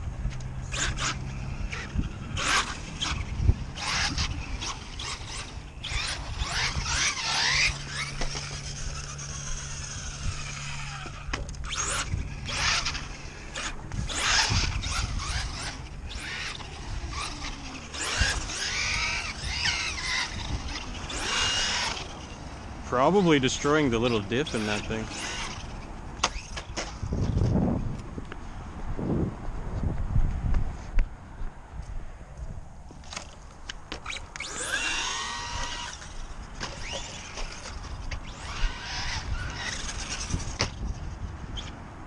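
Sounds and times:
rc truck electric motor whining: 0.2 - 27.6, 33.0 - 41.8
tyres squealing on concrete: 3.8 - 26.8, 34.0 - 40.6.

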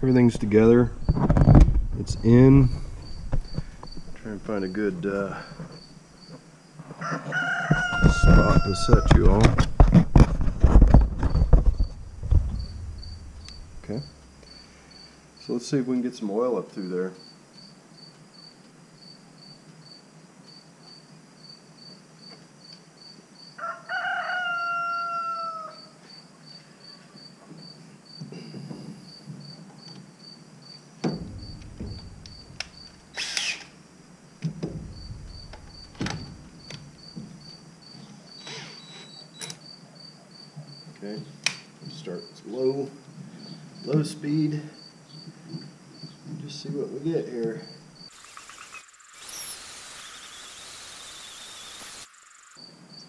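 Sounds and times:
cricket chirping: 0.0 - 15.6, 16.8 - 53.0
knocks and clunks of cordless drill: 1.0 - 2.0, 7.7 - 13.6, 31.0 - 33.7, 34.4 - 37.3, 48.1 - 52.1.

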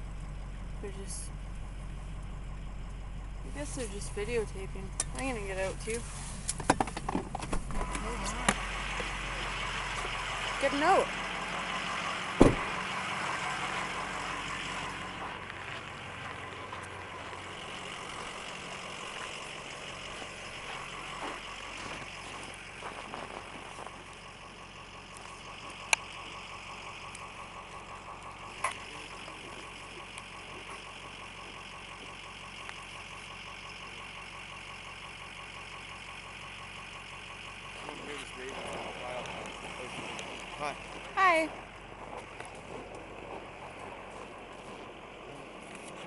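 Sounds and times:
vehicle engine idling: 0.0 - 46.0
loud thump: 12.4 - 12.8.

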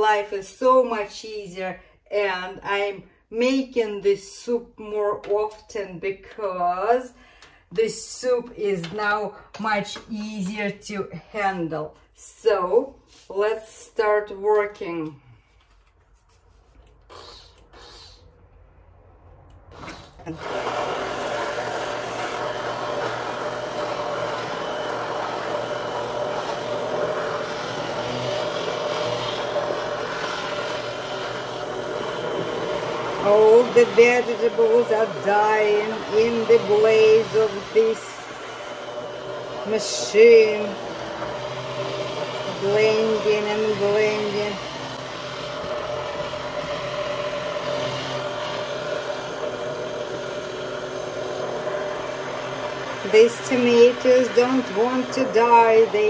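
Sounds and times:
immersion blender motor hum: 19.5 - 56.0
blade chopping vegetable soup: 19.8 - 56.0.

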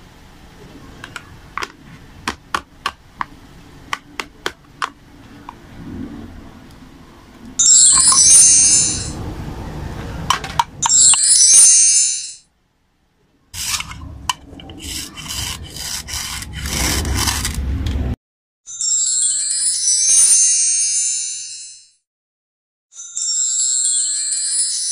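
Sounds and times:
bright chiming sound effects: 7.6 - 9.3, 10.8 - 12.5
toy knife scraping crayon: 13.6 - 17.7.

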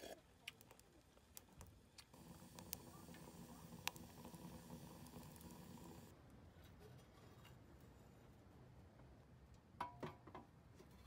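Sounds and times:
firewood crackles: 0.0 - 6.1
wood fire burning: 0.0 - 6.2.

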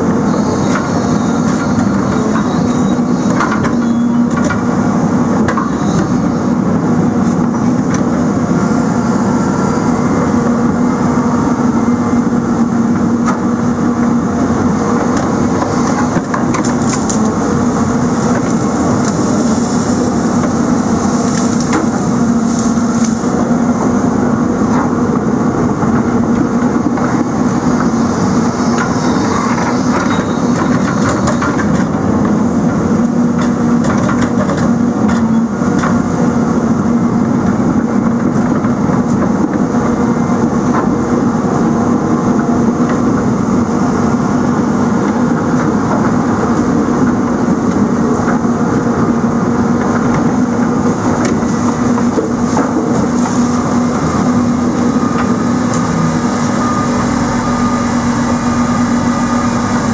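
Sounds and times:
diesel engine running under load: 0.0 - 59.9
wood cracking and snapping: 16.3 - 17.3.

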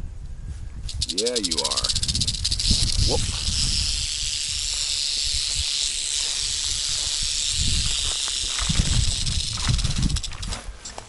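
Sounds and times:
rattlesnake rattling: 0.8 - 10.7
footsteps in grass: 3.2 - 11.0.

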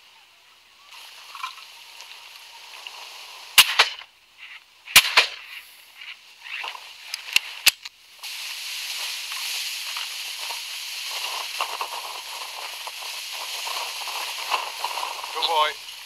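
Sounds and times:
shotgun shots with echo: 3.6 - 4.0, 4.9 - 5.5
faint sharp cracks: 3.6 - 8.0.

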